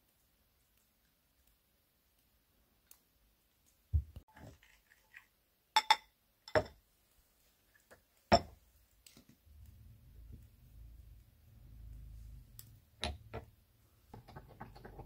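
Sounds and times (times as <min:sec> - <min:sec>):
low steady noise: 0:05.4 - 0:15.0
ceramic dishes clinking: 0:05.8 - 0:06.8, 0:08.3 - 0:08.6.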